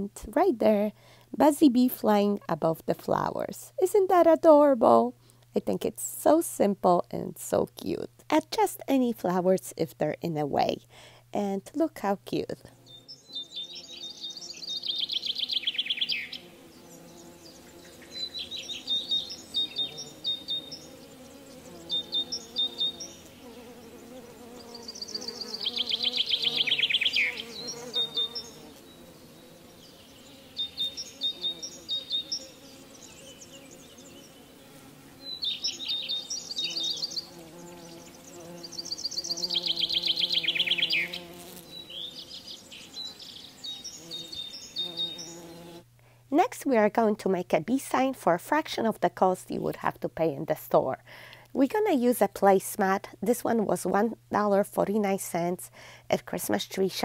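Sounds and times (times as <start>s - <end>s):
bird chirps and trills: 12.8s - 34.6s, 35.2s - 45.8s.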